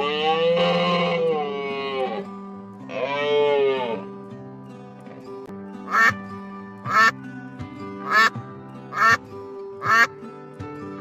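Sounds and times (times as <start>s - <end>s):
background music: 0.6s - 11.0s
cow mooing: 5.9s - 6.1s, 6.9s - 7.1s, 8.1s - 8.3s, 9.0s - 9.2s
duck quacking loudly: 5.9s - 6.2s, 6.9s - 7.1s, 8.1s - 8.3s, 8.9s - 9.2s, 9.8s - 10.1s.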